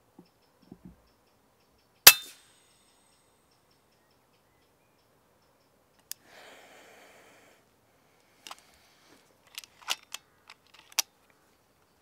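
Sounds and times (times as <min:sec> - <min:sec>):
air rifle lever clicking: 0:09.5 - 0:11.1.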